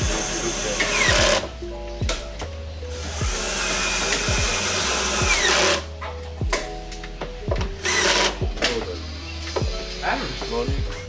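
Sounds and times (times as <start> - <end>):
cordless drill driving a screw: 0.0 - 1.5, 2.9 - 5.9, 7.8 - 8.4.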